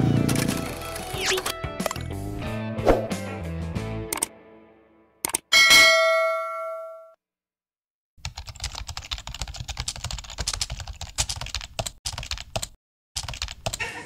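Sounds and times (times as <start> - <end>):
bell chime: 5.6 - 7.2.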